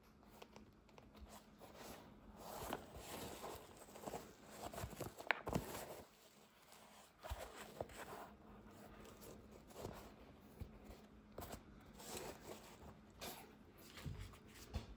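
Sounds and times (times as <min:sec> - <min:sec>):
sneaker being handled rustling: 0:01.1 - 0:14.9.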